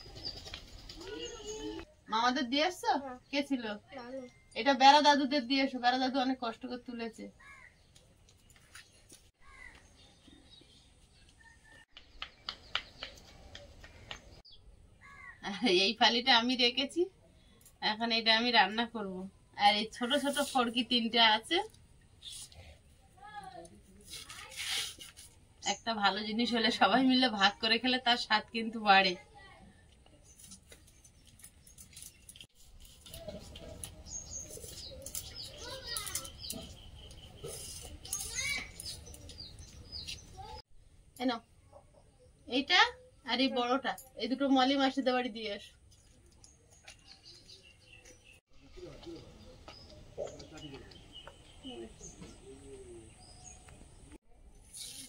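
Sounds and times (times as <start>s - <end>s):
small birds chirping: 0.0s - 15.6s, 25.6s - 40.6s, 44.9s - 54.2s
crow cawing: 15.0s - 15.4s.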